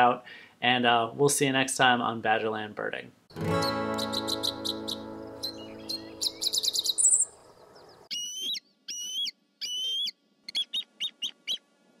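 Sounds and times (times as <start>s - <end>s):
guitar music: 3.3s - 6.7s
eagle calling: 4.0s - 11.6s.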